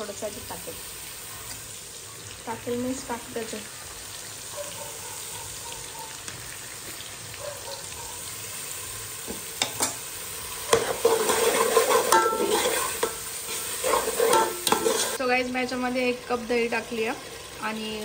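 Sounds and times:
spices sizzling in hot oil: 0.0s - 18.0s
metal ladle scraping a pot: 10.6s - 15.2s.

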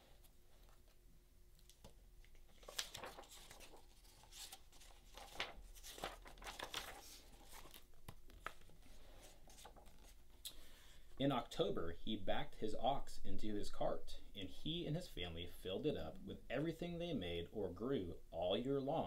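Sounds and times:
paper rustling and crinkling: 1.6s - 10.3s.

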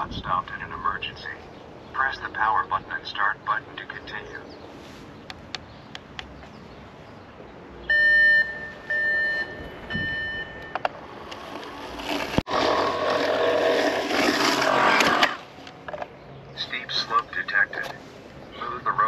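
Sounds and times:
electronic beeps: 7.9s - 10.8s.

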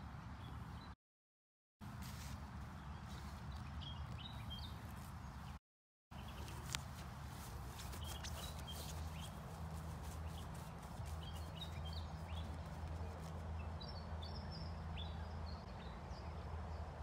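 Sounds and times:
rustling through grass: 1.8s - 5.5s, 6.2s - 13.6s
small birds chirping: 2.2s - 16.9s.

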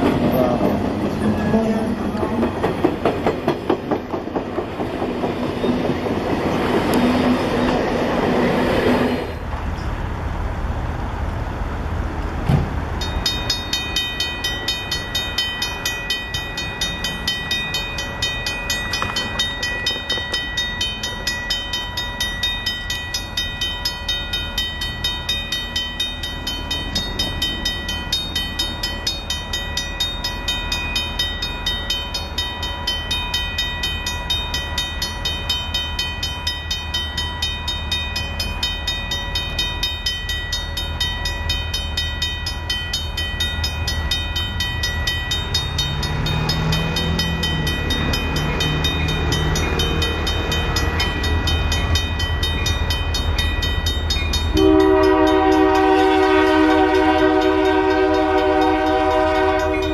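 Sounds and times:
steam locomotive running: 0.0s - 59.9s.

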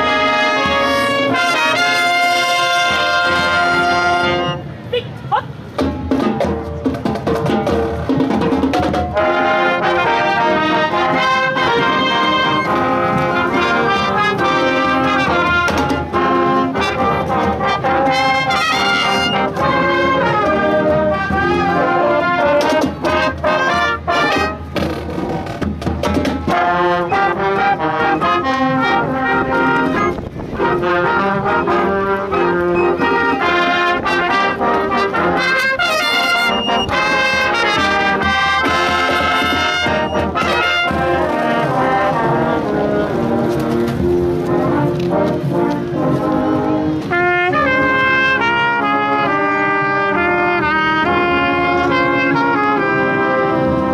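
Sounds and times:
brass and woodwinds playing: 0.0s - 6.8s, 7.4s - 53.9s
bass drums and percussion: 5.0s - 9.8s, 11.0s - 48.1s.

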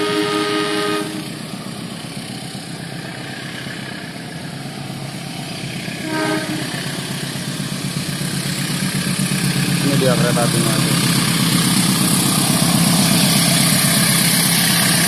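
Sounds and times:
train horn toot: 0.0s - 1.4s, 6.0s - 7.0s
diesel train engine drone: 0.0s - 15.0s.

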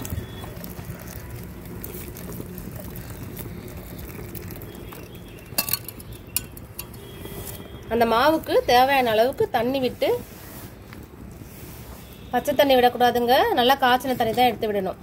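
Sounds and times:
water pouring into a pot: 0.0s - 8.5s.

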